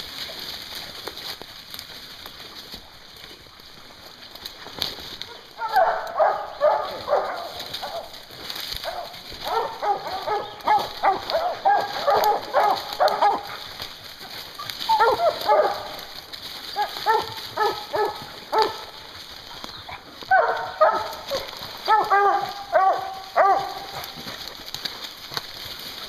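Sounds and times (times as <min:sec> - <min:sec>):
hounds barking: 0:05.2 - 0:26.0.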